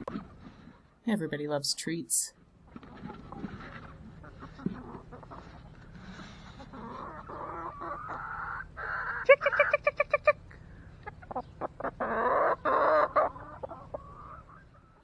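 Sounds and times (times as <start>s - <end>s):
chickens clucking: 2.6s - 15.0s
chicken squawking loudly: 6.7s - 10.4s, 11.2s - 14.6s.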